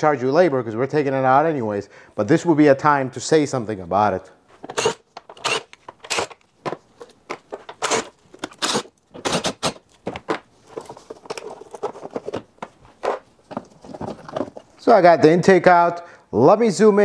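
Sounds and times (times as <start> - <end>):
plastic parts clicking and rattling: 4.6 - 14.8
cordless drill running: 4.7 - 6.4, 7.8 - 9.7.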